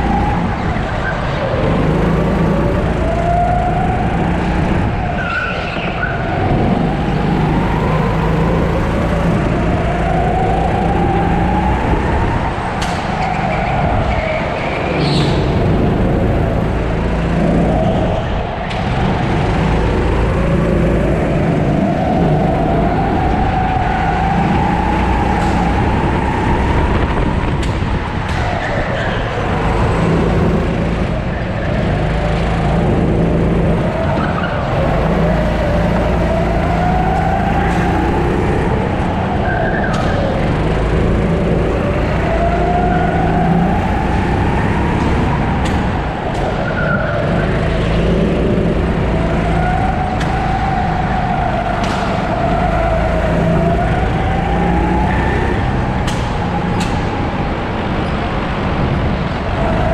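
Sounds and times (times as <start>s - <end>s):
kart engine running: 0.0s - 59.9s.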